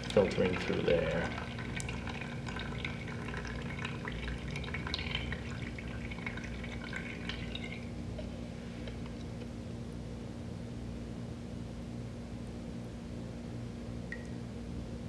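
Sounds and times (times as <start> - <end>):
water dripping into plastic cup: 0.0 - 7.9, 14.1 - 14.4
steady low hum: 0.0 - 15.0.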